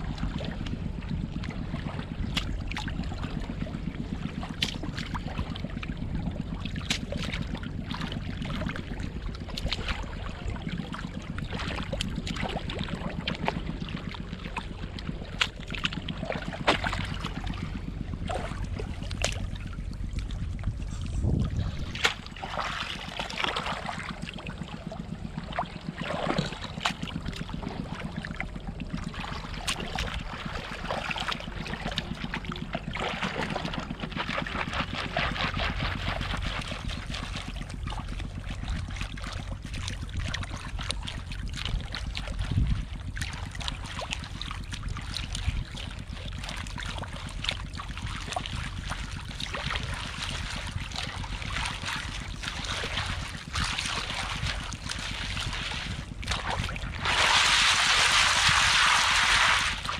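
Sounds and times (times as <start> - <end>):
seawater sloshing and trickling: 0.0 - 59.9.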